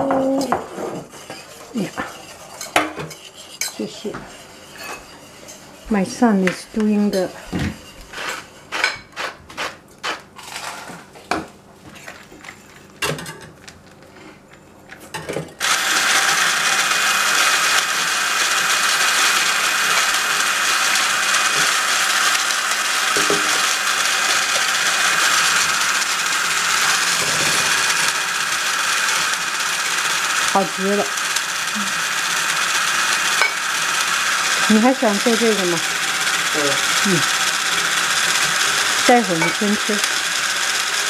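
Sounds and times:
stick blender whisking: 0:00.0 - 0:11.0, 0:15.6 - 0:41.0.

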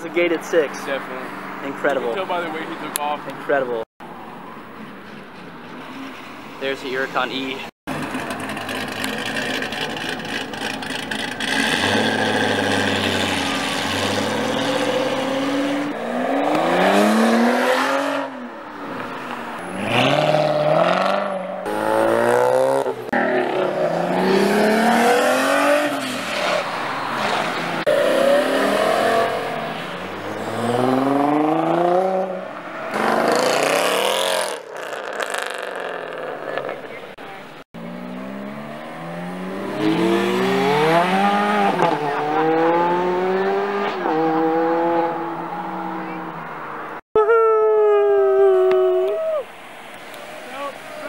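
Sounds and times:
sports car engines accelerating: 0:07.9 - 0:37.0, 0:37.8 - 0:47.0.

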